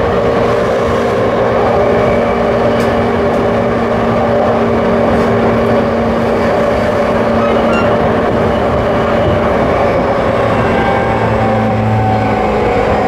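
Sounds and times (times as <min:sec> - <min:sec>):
train wheel and rail rumble: 0:00.0 - 0:13.0.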